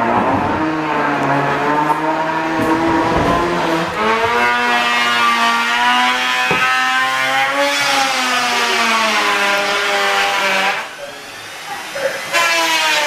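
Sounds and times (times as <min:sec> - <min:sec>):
power tool motor whining: 0:00.6 - 0:13.0
knock: 0:02.5 - 0:04.4, 0:06.4 - 0:06.8.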